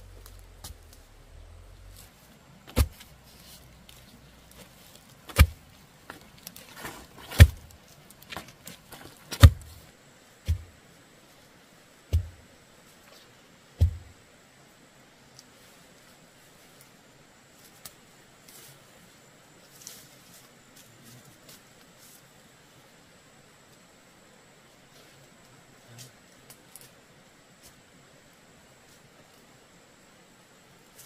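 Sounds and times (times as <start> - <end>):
heavy deep thuds: 0.0 - 3.2, 5.2 - 5.7, 7.3 - 7.8, 9.3 - 9.8, 10.4 - 10.8, 12.1 - 12.4, 13.8 - 14.2.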